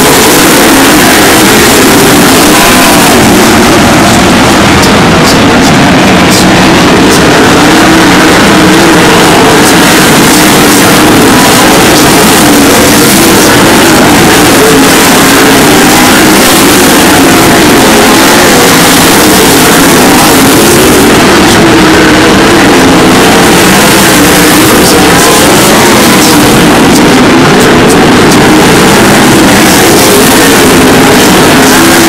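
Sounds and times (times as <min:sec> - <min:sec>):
race car engines roaring: 0:00.0 - 0:32.0.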